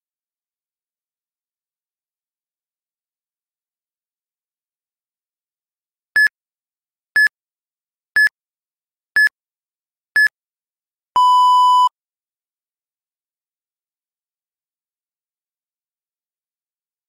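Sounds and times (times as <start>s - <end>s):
longer lower beep: 11.2s - 11.9s
short high beeps: 11.2s - 11.9s.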